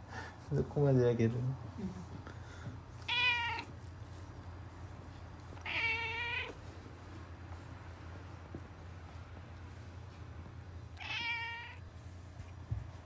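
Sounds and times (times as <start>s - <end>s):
cat meowing: 3.0s - 3.8s, 5.6s - 6.6s, 11.0s - 11.8s.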